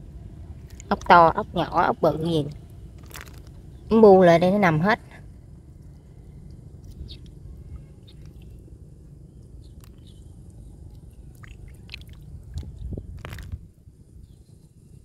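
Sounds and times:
steady low rumble: 0.0s - 15.0s
snail shells clicking together: 3.0s - 3.5s.

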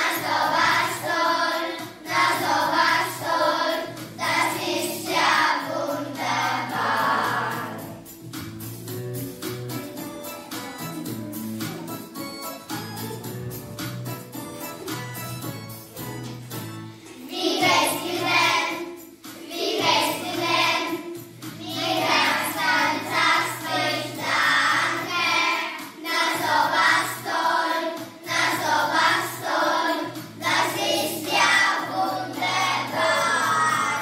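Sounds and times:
children singing together: 0.0s - 8.1s, 17.0s - 34.0s
instrumental backing track: 0.0s - 34.0s.

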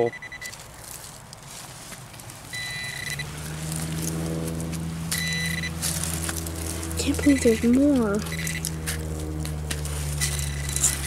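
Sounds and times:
low engine hum: 0.0s - 11.0s
short high beep: 2.5s - 3.2s.

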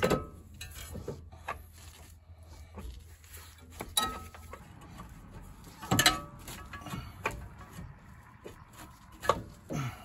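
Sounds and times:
metal knocks and clunks: 0.0s - 1.2s, 5.7s - 9.8s.

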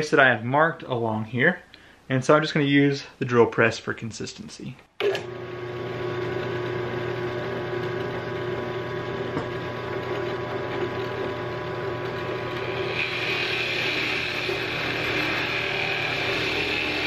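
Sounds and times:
drill bit cutting wood: 5.0s - 17.0s
drill press motor humming: 5.0s - 17.0s.

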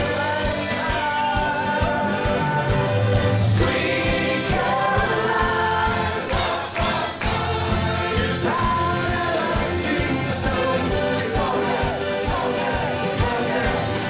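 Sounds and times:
band music: 0.0s - 14.0s
voices singing together: 0.0s - 14.0s.

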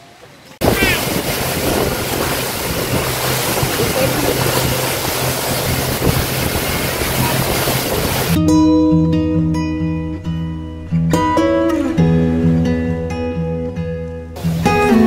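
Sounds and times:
motorboat engine hum: 0.0s - 8.4s, 14.3s - 15.0s
water splashing: 0.0s - 8.4s
wind on microphone: 0.6s - 8.4s.

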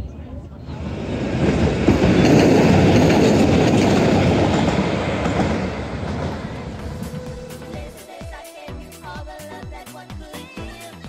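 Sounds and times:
train wheels rumbling on rails: 0.2s - 8.4s.

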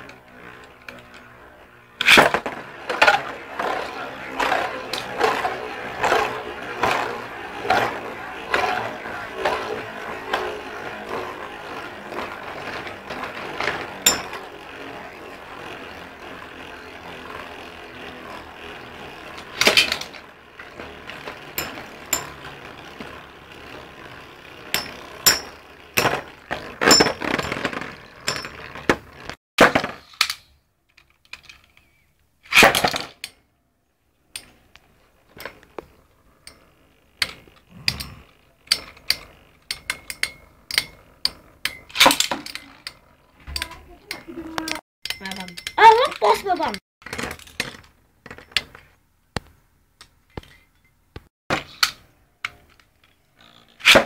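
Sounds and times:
spinning tops whirring: 0.0s - 29.4s, 34.4s - 46.8s.

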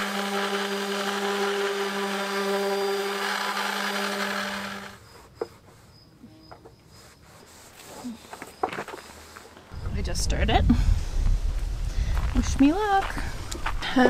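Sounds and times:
orbital sander on wood: 0.0s - 5.9s.

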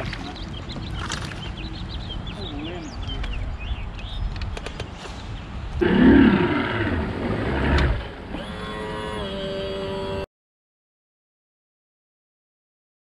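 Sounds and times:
wind on microphone: 0.0s - 9.2s
outboard motor running: 5.8s - 10.2s.

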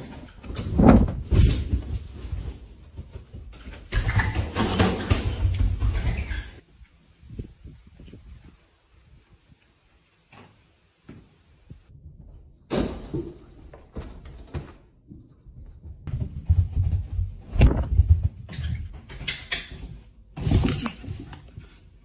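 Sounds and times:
heavy uneven thumps: 15.0s - 18.8s.

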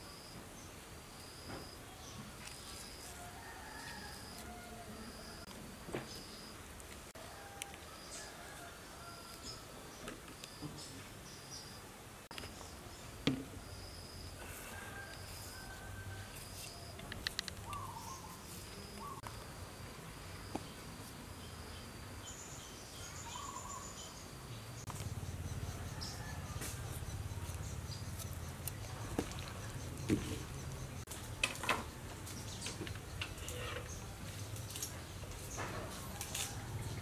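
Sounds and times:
insect noise: 0.0s - 37.0s
birds chirping: 17.1s - 19.3s, 21.5s - 31.1s.

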